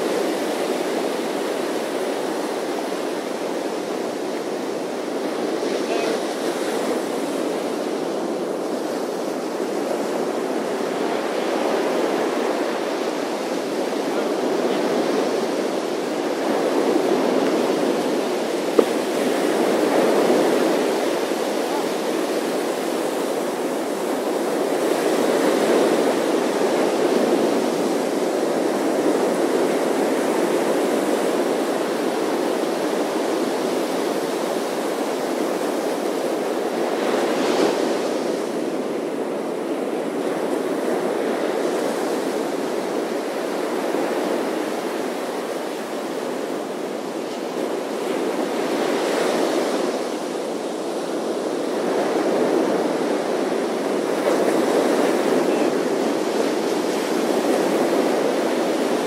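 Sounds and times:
ocean waves breaking on beach: 0.0s - 59.0s.

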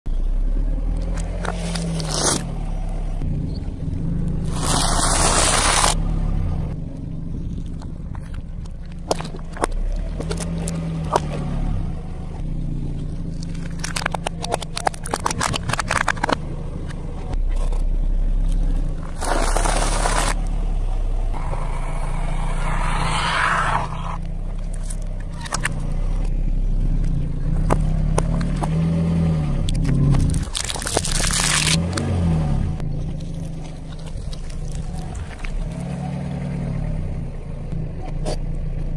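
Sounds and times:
car engine hum: 0.1s - 38.9s
tyre crushing plastic cups: 13.4s - 16.4s, 19.1s - 20.4s, 29.7s - 31.9s.

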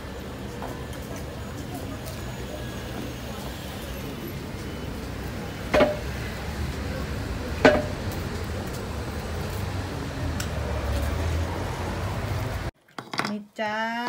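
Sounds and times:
murmur of passers-by: 0.0s - 12.7s.

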